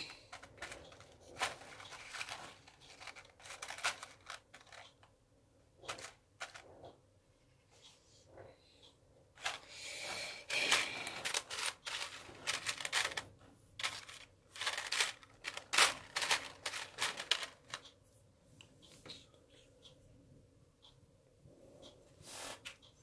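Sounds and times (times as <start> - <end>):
plastic beads rattling: 0.0 - 4.9, 10.5 - 17.8.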